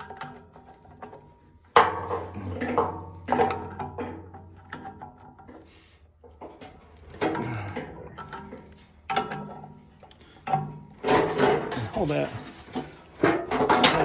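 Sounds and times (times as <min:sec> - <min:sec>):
wrench clanking on metal: 0:07.1 - 0:12.1.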